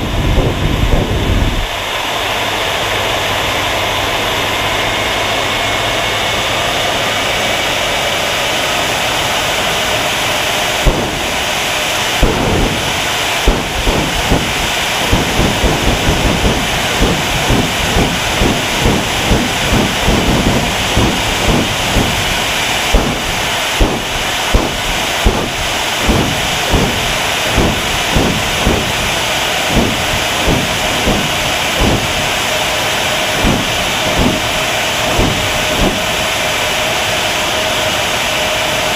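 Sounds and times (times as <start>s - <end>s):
jet engine hissing: 0.0s - 38.9s
sharp irregular pops: 10.8s - 11.6s, 12.2s - 32.4s, 33.3s - 36.4s.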